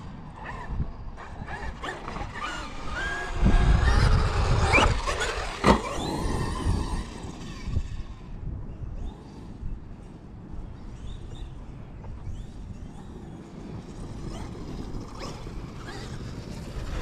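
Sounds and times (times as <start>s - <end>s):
toy truck tyres rumbling: 0.0s - 8.4s, 12.1s - 17.0s
electric motor whining: 1.2s - 8.3s.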